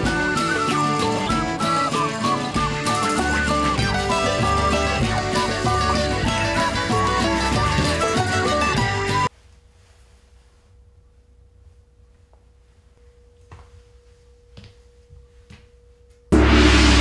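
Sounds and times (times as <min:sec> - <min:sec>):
loud guitar music: 0:00.0 - 0:09.3.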